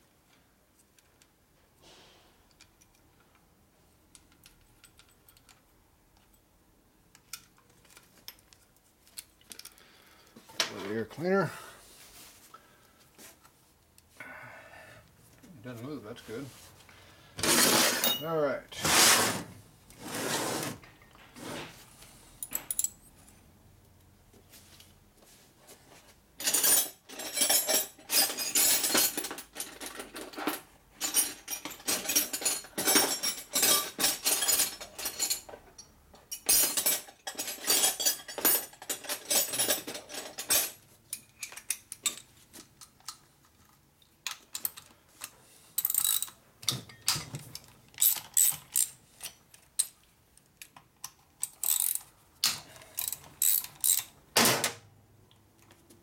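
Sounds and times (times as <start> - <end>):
ratchet wrench clicking: 45.8 - 46.3, 51.4 - 52.1, 53.0 - 54.1.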